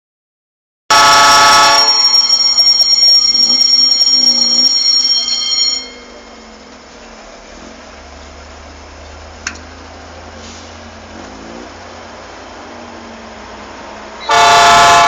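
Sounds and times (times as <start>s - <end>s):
locomotive air horn blast: 0.9s - 2.1s, 14.2s - 15.0s
faint steady rumble: 2.8s - 14.3s.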